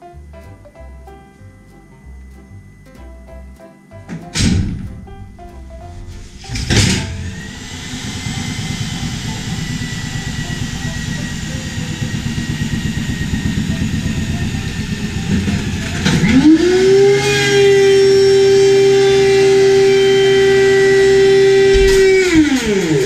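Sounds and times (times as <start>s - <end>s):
clunk: 4.1s - 8.0s, 21.7s - 23.0s
planer motor whining and humming: 4.3s - 23.0s
electric drill clattering and whining: 6.2s - 23.0s.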